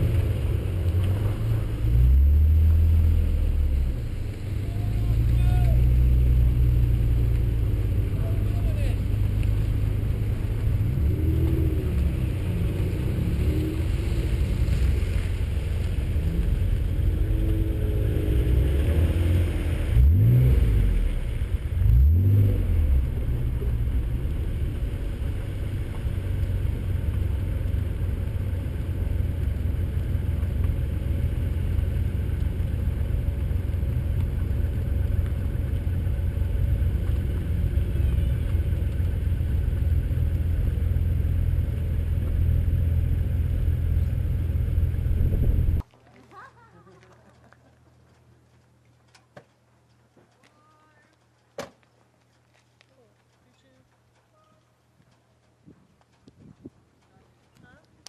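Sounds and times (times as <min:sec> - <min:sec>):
car engine accelerating: 0:00.0 - 0:45.8
road noise: 0:00.0 - 0:58.0.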